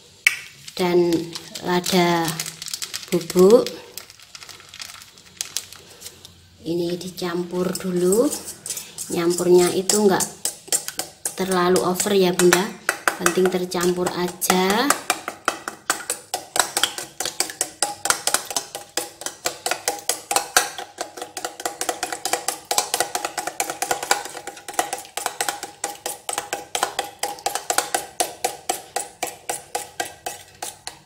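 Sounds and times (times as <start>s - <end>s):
spoon clinking in metal bowl: 7.7s - 31.0s.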